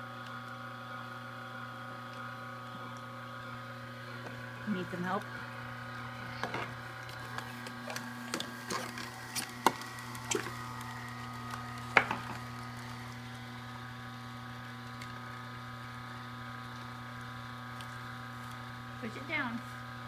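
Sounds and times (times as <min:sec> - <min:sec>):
juicer motor humming: 0:00.0 - 0:20.0.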